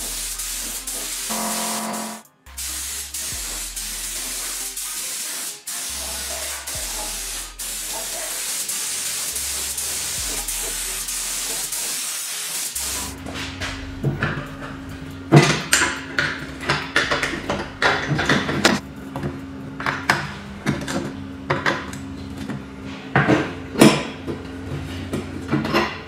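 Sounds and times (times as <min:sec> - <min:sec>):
background music with bass: 0:00.0 - 0:11.9, 0:12.8 - 0:18.8
spray gun hissing: 0:00.0 - 0:13.1.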